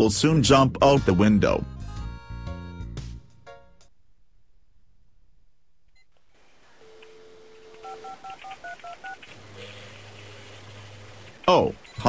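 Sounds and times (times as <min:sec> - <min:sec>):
telephone dial tone: 0:06.8 - 0:12.0
touch-tone keypad beeps: 0:06.9 - 0:09.2.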